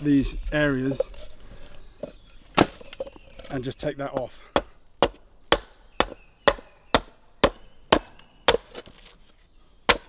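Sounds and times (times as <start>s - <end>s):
axe chopping wooden shingle: 2.6s - 3.1s, 4.1s - 9.2s.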